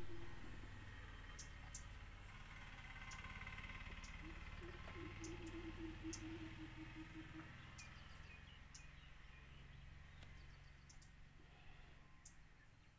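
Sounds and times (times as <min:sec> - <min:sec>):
faint bird chirps: 0:00.0 - 0:02.0, 0:03.0 - 0:12.9
low pulsing drone: 0:00.0 - 0:12.4
light ticks: 0:10.2 - 0:11.1.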